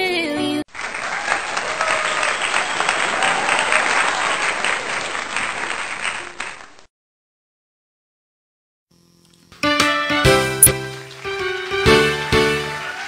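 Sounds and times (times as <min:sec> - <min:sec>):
crowd applauding: 0:00.7 - 0:06.9, 0:10.8 - 0:13.0.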